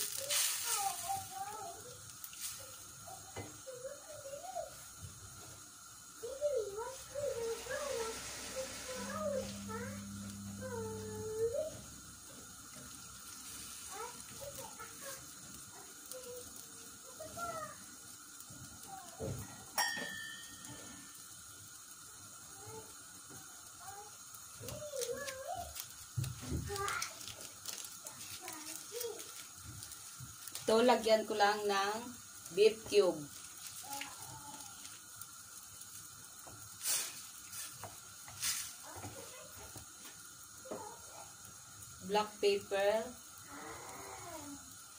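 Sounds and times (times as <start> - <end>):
stew bubbling in a pan: 0.0 - 44.9
sharp clink with ring: 19.8 - 21.0.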